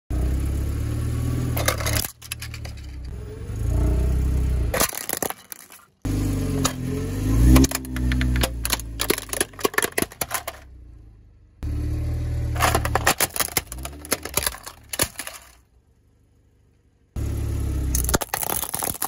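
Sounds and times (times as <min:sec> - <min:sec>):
car engine running low: 0:00.1 - 0:19.0
plastic toys cracking under tyre: 0:01.6 - 0:03.1, 0:04.7 - 0:06.0, 0:07.4 - 0:10.6, 0:12.6 - 0:15.6, 0:17.9 - 0:19.0.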